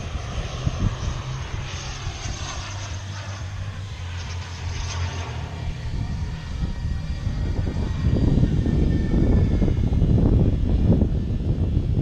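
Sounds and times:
model airplane motor droning: 0.0 - 12.0.

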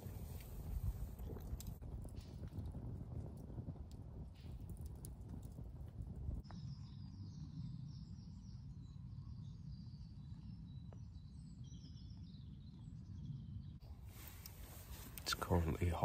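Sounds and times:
campfire crackle: 0.0 - 6.6, 13.8 - 16.0.

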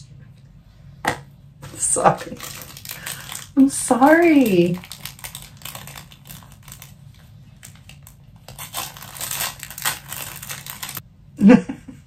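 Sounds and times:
packaging rustling: 1.6 - 11.0.

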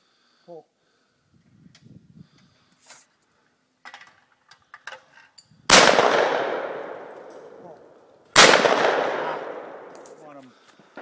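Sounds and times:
shotgun shots: 5.7 - 7.6, 8.3 - 10.2
rolling echo: 5.7 - 11.0.

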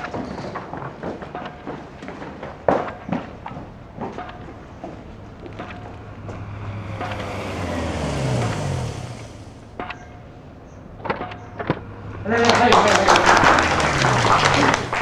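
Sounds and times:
sharp knocks: 0.0 - 10.3, 11.0 - 12.0
vehicle passing by: 4.9 - 15.0.

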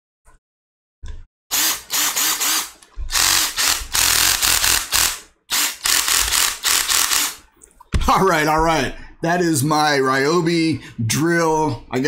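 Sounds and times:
drill clutch ratcheting clatter: 1.5 - 7.4.

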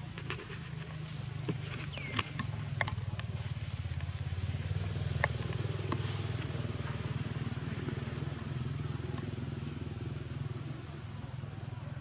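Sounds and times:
small engine humming: 0.5 - 12.0
sharp clicks: 1.4 - 4.3, 5.0 - 6.0.

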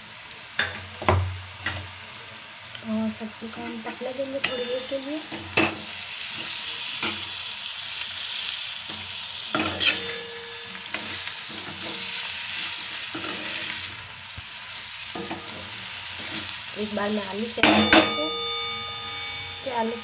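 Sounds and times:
vegetables sizzling in pan: 0.0 - 20.0
spatula scraping pan: 9.5 - 14.0.

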